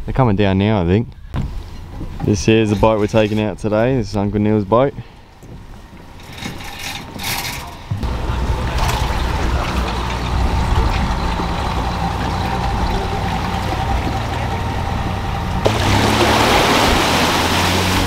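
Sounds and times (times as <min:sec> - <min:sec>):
engine idling: 0:08.0 - 0:17.0
water gushing off boat trailer: 0:08.0 - 0:18.0.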